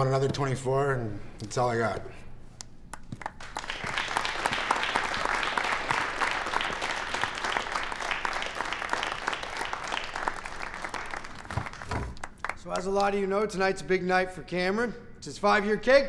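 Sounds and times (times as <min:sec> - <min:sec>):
crowd applauding: 0:03.1 - 0:13.2.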